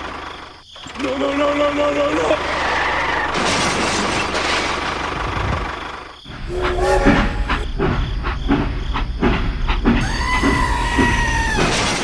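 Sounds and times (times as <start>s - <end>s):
short tone: 6.5s - 7.7s
toy steam locomotive hissing rumble: 8.3s - 11.6s.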